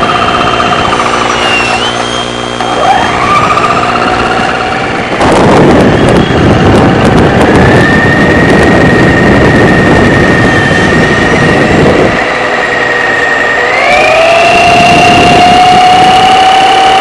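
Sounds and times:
electric motor whine: 0.0s - 17.0s
wheels rumbling on pavement: 0.0s - 17.0s.

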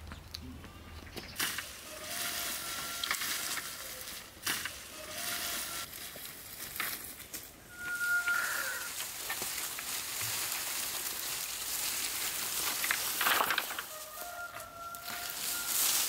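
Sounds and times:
dry branches rustling and crackling: 0.0s - 16.0s
short whistle-like tone: 7.7s - 8.9s.

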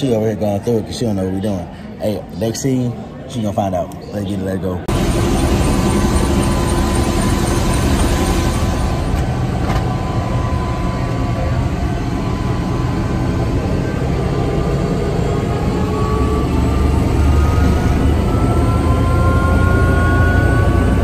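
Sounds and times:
thin steady whine: 4.1s - 21.0s
helicopter rumble from cabin: 4.8s - 21.0s.

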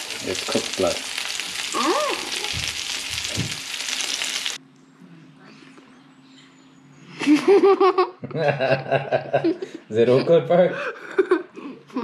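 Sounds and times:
fish sizzling in hot oil: 0.0s - 4.6s
child laughing: 7.2s - 9.8s, 10.8s - 12.0s.

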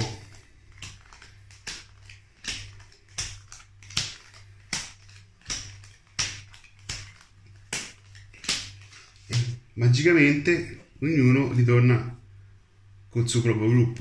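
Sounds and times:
playing cards slapping on table: 0.0s - 9.8s
low steady hum: 0.0s - 14.0s.

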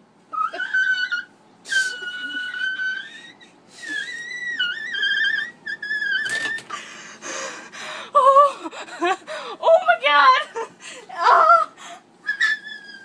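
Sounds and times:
woman whimpering wails: 0.4s - 5.5s, 8.1s - 8.7s, 11.1s - 13.0s.

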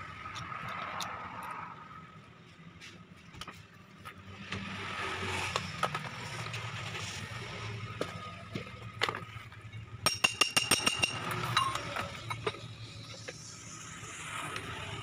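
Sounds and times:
metal tools knocking and clinking: 9.0s - 13.4s
sharp metallic clinks: 10.0s - 12.7s.

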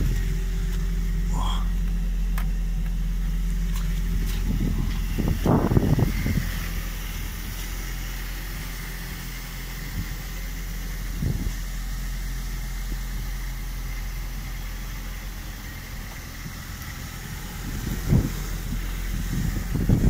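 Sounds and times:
person climbing out of car: 0.0s - 6.4s
car engine idling: 0.0s - 20.0s.

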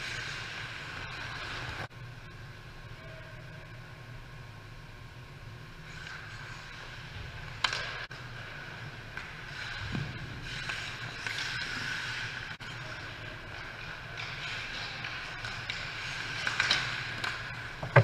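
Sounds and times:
skates scraping on ice: 5.9s - 18.0s.

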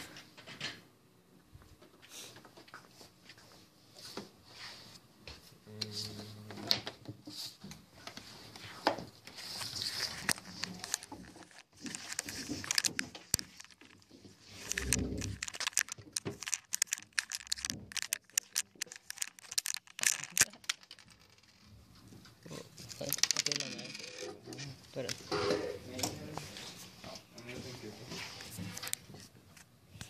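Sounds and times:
handling clicks and crinkling: 9.6s - 25.2s, 28.4s - 29.7s.

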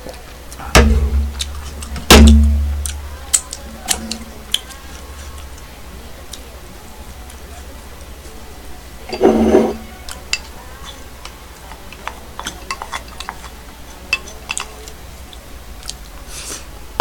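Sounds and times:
utensils clinking on bowls: 9.0s - 15.0s.

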